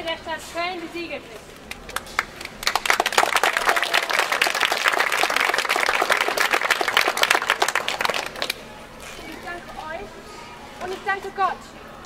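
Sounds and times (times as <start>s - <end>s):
audience applauding: 1.9s - 8.6s.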